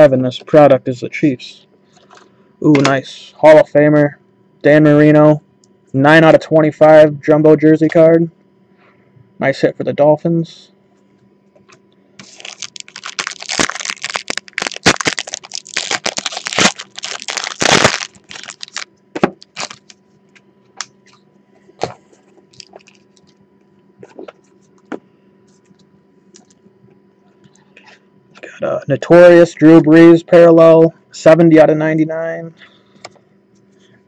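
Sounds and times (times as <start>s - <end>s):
foil wrapper crinkling: 12.2s - 20.0s, 22.5s - 23.4s.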